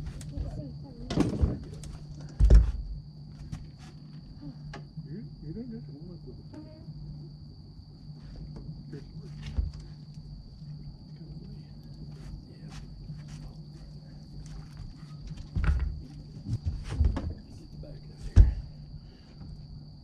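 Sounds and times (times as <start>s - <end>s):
low steady hum: 0.0s - 20.0s
night insects chorus: 0.0s - 20.0s
heavy thump: 2.3s - 2.9s, 18.3s - 18.8s.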